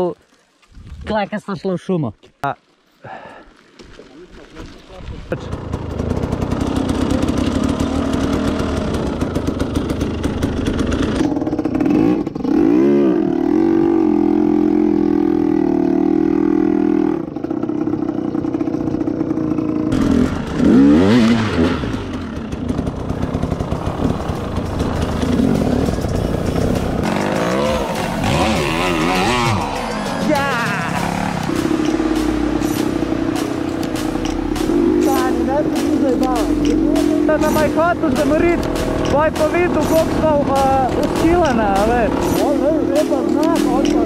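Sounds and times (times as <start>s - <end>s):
dirt bike engine revving: 5.3s - 44.0s.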